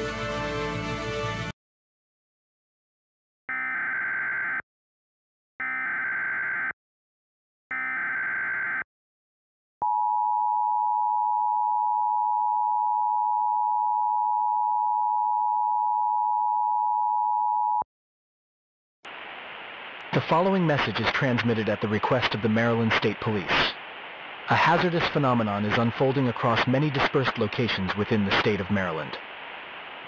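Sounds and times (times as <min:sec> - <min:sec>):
two-tone alarm: 0:03.5 - 0:04.6, 0:05.6 - 0:06.8, 0:07.7 - 0:08.9, 0:09.8 - 0:17.8.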